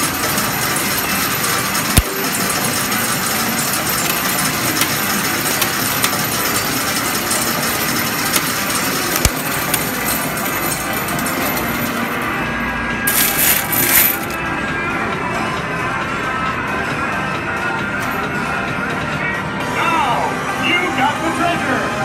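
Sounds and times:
mechanical din of arcade machine: 0.0 - 12.0
metal medals clinking: 0.8 - 12.3, 13.1 - 14.4.

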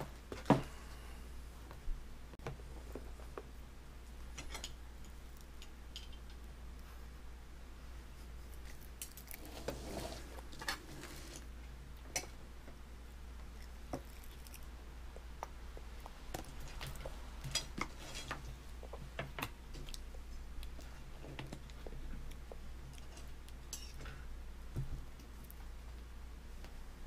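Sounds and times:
low steady hum: 0.0 - 27.0
baby chewing with mouth smacks: 13.4 - 24.0.

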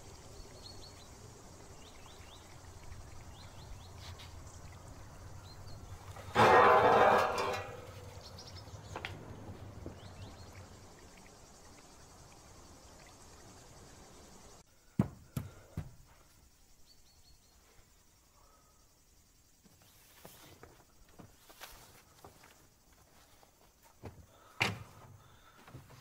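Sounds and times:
small birds chirping: 0.0 - 6.4, 7.8 - 25.7
object dragged across hard surface: 6.4 - 8.0.

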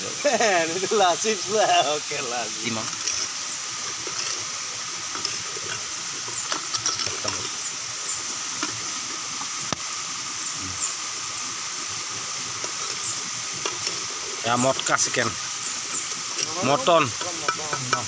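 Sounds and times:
steady hiss: 0.0 - 18.0
ladle scraping clay pot: 2.7 - 7.6, 12.5 - 18.0.

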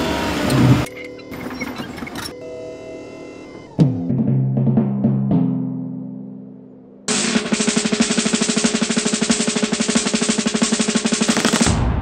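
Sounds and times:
low ringing tone: 0.8 - 4.1
snare drum roll: 7.1 - 11.8.

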